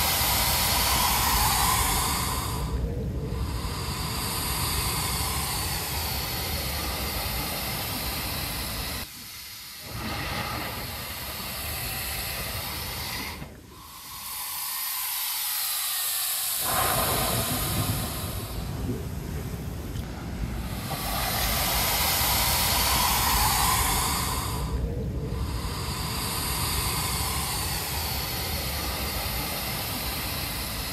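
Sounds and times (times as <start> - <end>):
seawater rushing through rock hole: 9.7 - 30.9.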